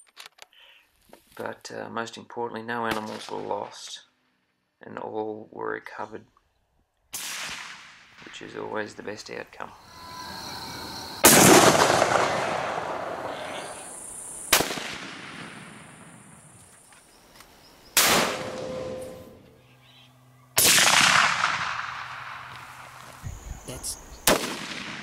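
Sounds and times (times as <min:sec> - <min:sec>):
rifle shots with rolling echo: 0:07.1 - 0:08.3, 0:11.2 - 0:16.6, 0:18.0 - 0:18.8, 0:20.6 - 0:23.0, 0:24.2 - 0:25.0.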